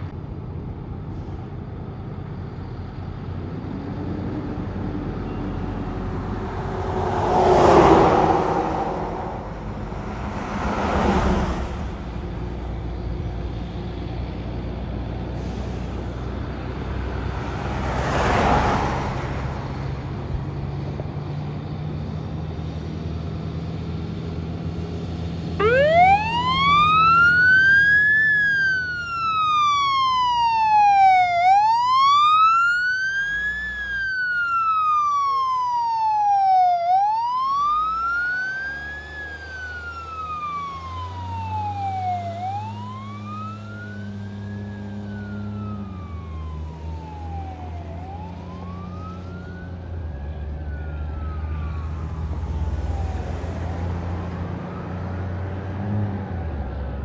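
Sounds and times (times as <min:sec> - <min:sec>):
diesel engines running: 0:00.0 - 0:57.0
siren wailing: 0:05.3 - 0:12.4, 0:25.5 - 0:56.7
loud rushes of noise: 0:05.4 - 0:12.8.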